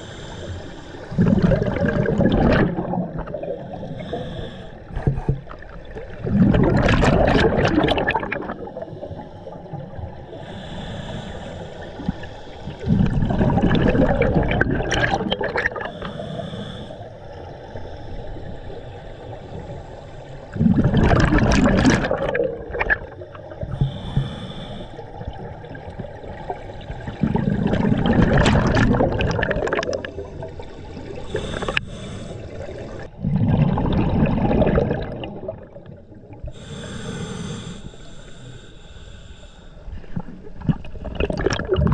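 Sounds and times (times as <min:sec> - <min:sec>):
regulator hissing inhale: 0:00.0 - 0:01.2, 0:03.5 - 0:05.3, 0:08.5 - 0:13.0, 0:15.8 - 0:20.6, 0:23.4 - 0:25.3, 0:30.4 - 0:33.1, 0:36.5 - 0:40.1
exhaled bubbles underwater: 0:00.0 - 0:11.2, 0:11.8 - 0:36.9, 0:39.9 - 0:41.9.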